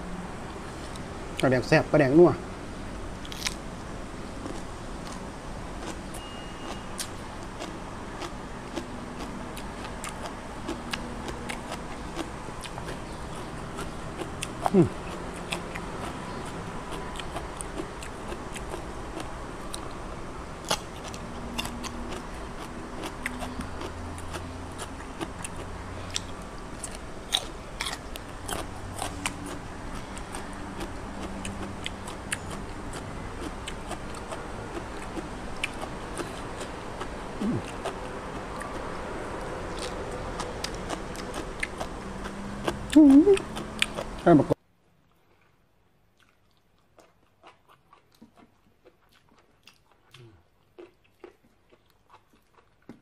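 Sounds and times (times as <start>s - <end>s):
person chewing: 3.2s - 3.6s, 5.8s - 20.0s, 20.6s - 44.2s, 45.1s - 53.0s.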